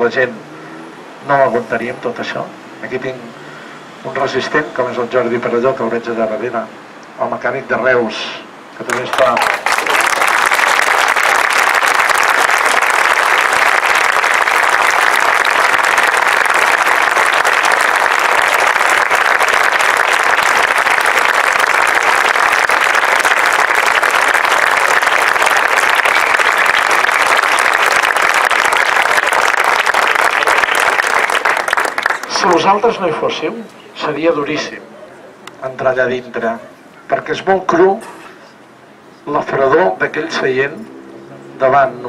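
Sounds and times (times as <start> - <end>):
crowd applauding: 8.8 - 33.0.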